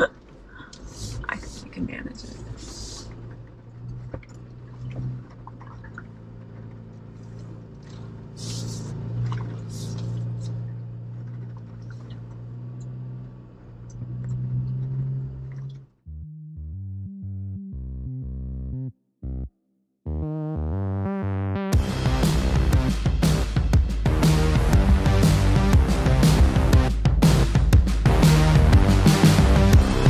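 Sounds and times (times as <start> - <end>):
car engine running: 0.0 - 16.0, 21.7 - 30.0
water splashing around tyres: 2.6 - 12.7
electronic synth music: 16.1 - 30.0.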